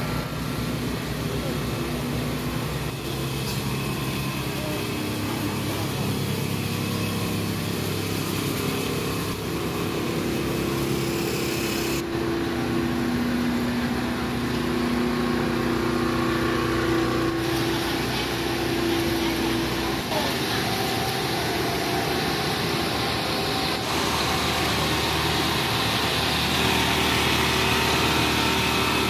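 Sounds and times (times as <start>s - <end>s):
small engine humming: 0.0s - 29.0s
street noise: 0.0s - 29.0s.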